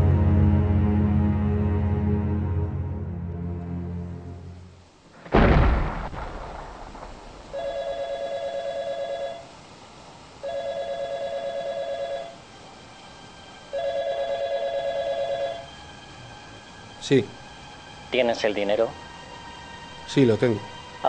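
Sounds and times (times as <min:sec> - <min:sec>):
loud boom: 0:05.2 - 0:07.6
mobile phone ringing: 0:07.5 - 0:09.5, 0:10.4 - 0:12.4, 0:13.7 - 0:15.7.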